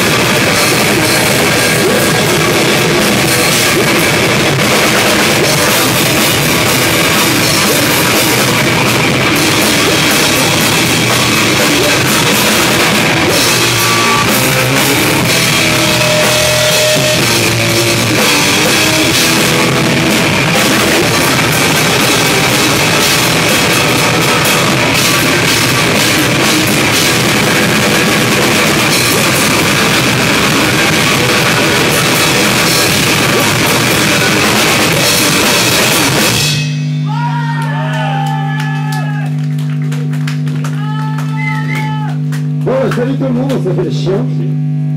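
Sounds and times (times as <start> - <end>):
drum kit: 0.0 - 43.8
electric guitar: 0.0 - 44.9
person shouting into a microphone: 37.0 - 39.4, 40.7 - 43.2.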